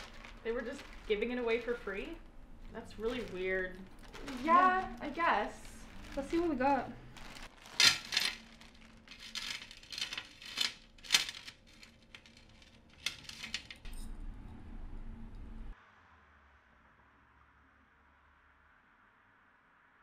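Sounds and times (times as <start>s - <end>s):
jewelry rattling and clinking: 0.0s - 14.2s
low steady hum: 0.0s - 15.8s.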